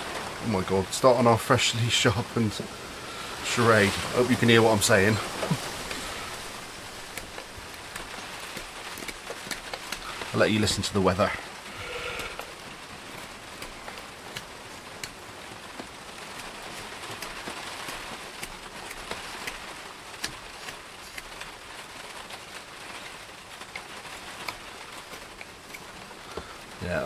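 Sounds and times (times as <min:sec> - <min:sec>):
rain falling: 0:00.0 - 0:27.0.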